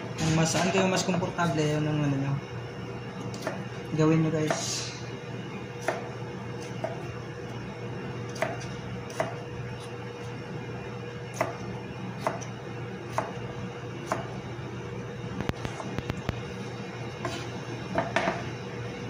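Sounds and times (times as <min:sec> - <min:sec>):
knife chopping on cutting board: 0:03.4 - 0:03.6, 0:04.4 - 0:04.7, 0:05.8 - 0:07.1, 0:08.3 - 0:09.9, 0:11.3 - 0:11.6, 0:12.2 - 0:12.5, 0:13.1 - 0:13.4, 0:14.0 - 0:14.3, 0:17.2 - 0:18.5.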